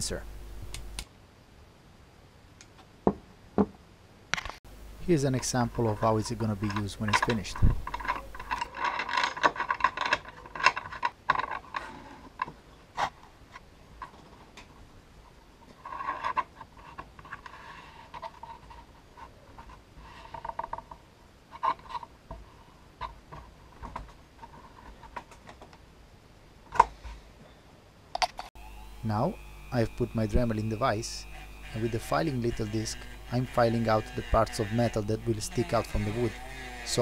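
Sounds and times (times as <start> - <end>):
wood and metal clicking and scraping: 5.4 - 25.8, 31.8 - 37.0.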